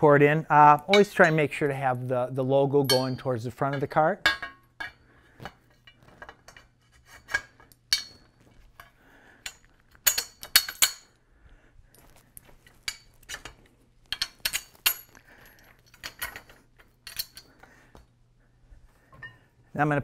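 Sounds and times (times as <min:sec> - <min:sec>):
metal hardware clinking on frame: 0:00.6 - 0:01.9, 0:02.7 - 0:11.2, 0:12.0 - 0:17.8.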